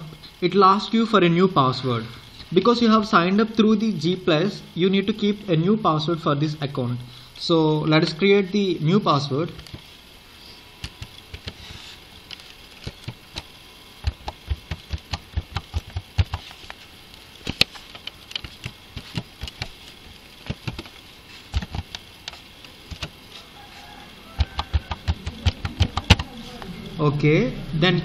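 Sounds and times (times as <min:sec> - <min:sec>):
keyboard keys clicking: 0:24.6 - 0:26.3.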